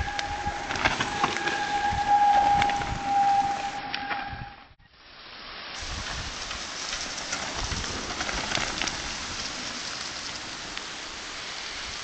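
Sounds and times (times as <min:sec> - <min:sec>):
mountain bike tyre noise: 0:00.0 - 0:12.0
steady hiss: 0:04.8 - 0:12.0.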